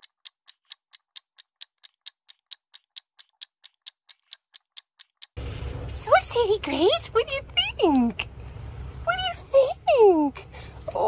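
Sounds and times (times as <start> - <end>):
clock ticking: 0.0 - 5.4.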